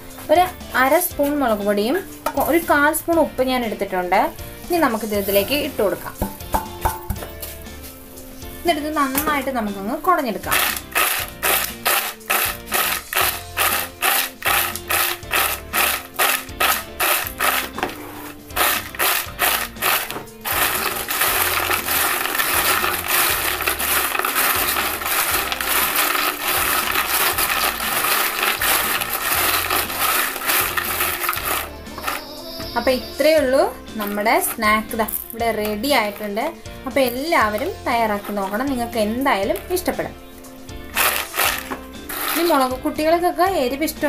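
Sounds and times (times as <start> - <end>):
background music: 0.0 - 44.0
chips rattling in bowl: 10.5 - 32.2, 34.0 - 36.4, 40.9 - 42.8.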